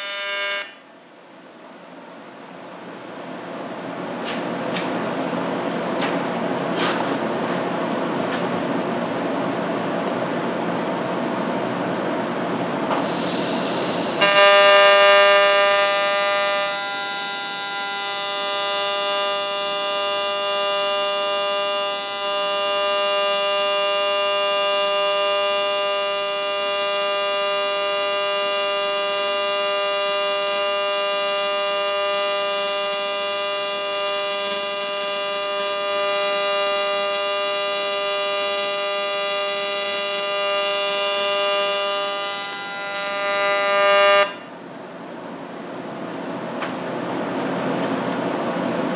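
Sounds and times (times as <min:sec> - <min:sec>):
welding hiss: 0:00.0 - 0:00.8, 0:12.9 - 0:44.4
welding arc buzzing: 0:00.0 - 0:00.9, 0:12.9 - 0:44.5.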